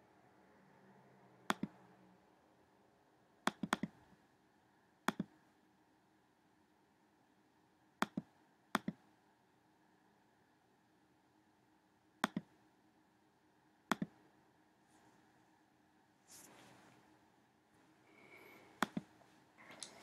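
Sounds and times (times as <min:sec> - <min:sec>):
computer mouse clicking: 0:01.5 - 0:01.8, 0:03.5 - 0:04.0, 0:05.1 - 0:05.4, 0:08.0 - 0:09.0, 0:12.2 - 0:12.5, 0:13.9 - 0:14.2, 0:18.8 - 0:19.1.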